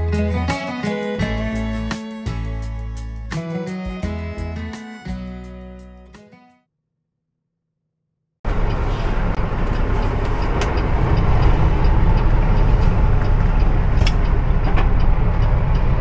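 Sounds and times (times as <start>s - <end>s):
diesel engine low rumble: 0.0s - 5.9s, 8.4s - 16.0s
road noise: 8.4s - 16.0s.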